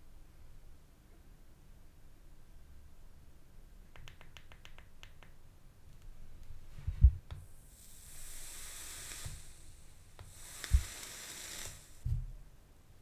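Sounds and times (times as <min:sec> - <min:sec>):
vape coils sizzling: 0:07.4 - 0:12.1.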